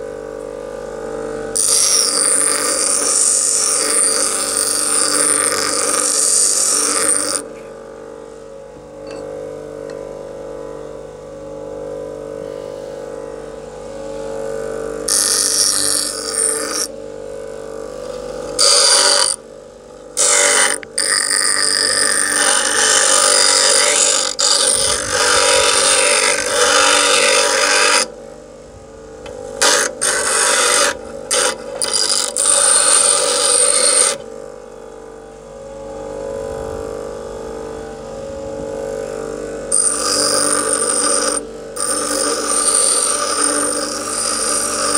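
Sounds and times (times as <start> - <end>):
bench grinder motor hum: 0.0 - 44.9
file grinding against wheel: 1.5 - 7.5, 15.1 - 17.0, 18.0 - 19.4, 20.2 - 28.1, 29.6 - 34.3, 39.7 - 44.9.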